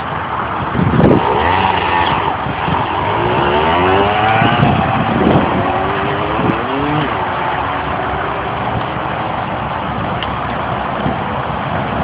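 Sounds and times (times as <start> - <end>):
dirt bike engine revving: 0.9 - 8.7.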